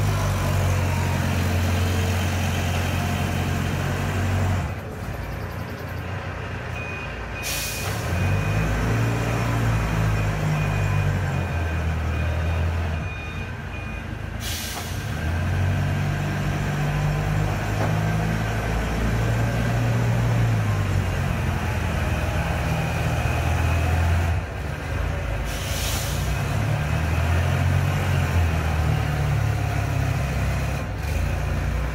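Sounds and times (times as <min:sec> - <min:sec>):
faint beep: 0:06.7 - 0:08.8, 0:10.1 - 0:14.2.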